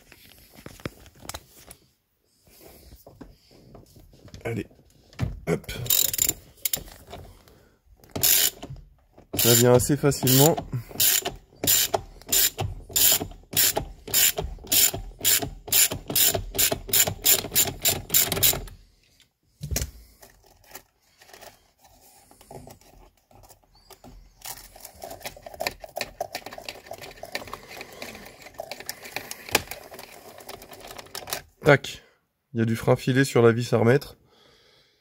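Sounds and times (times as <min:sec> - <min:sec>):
ratchet wrench clicking: 0:05.9 - 0:06.8, 0:08.1 - 0:08.8, 0:09.4 - 0:18.7.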